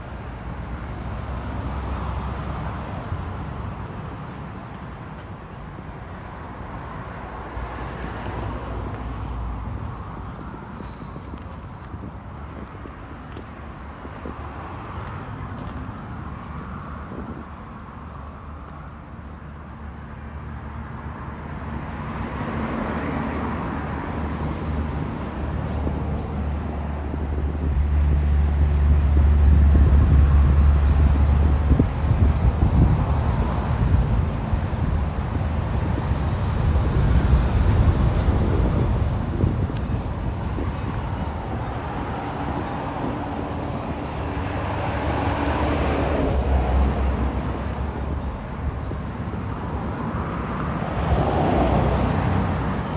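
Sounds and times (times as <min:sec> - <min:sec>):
road traffic rumble: 0:00.0 - 0:52.9
vehicles passing by: 0:00.0 - 0:52.9.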